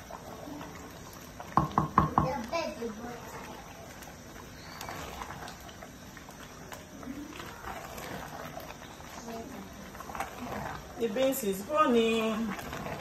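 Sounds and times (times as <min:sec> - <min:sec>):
spoon stirring thick porridge: 0:00.0 - 0:13.0
spoon knocking metal pot: 0:01.6 - 0:02.3.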